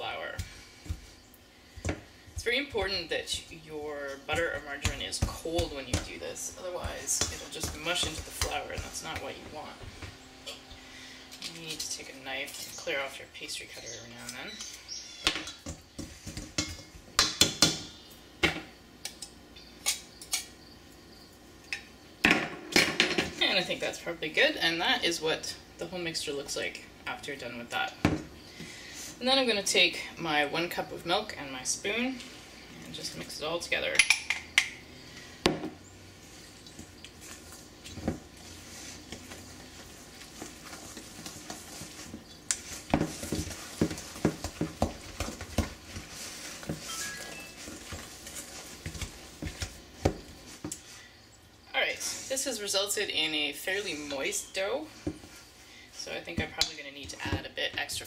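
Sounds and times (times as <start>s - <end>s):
spoon stirring dough in bowl: 0.1s - 10.6s, 36.2s - 50.8s.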